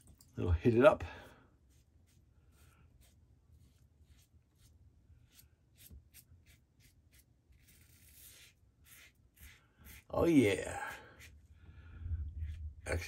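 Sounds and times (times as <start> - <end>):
razor scraping stubble: 5.3 - 11.4.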